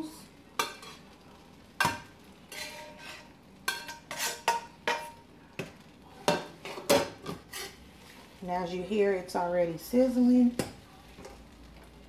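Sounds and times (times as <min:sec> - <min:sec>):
utensil clinking and scraping pot: 0:00.6 - 0:01.2, 0:01.8 - 0:07.8.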